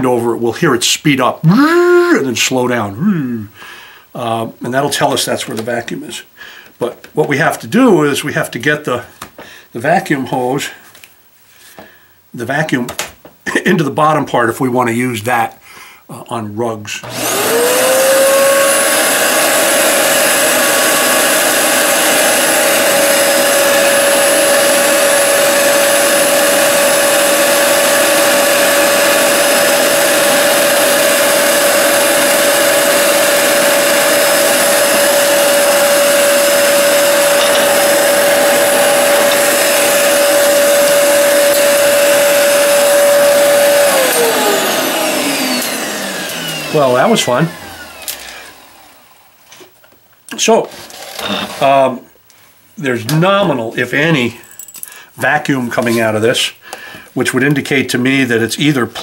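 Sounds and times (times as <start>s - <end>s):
vacuum cleaner motor whining: 17.0s - 49.2s, 50.3s - 51.8s.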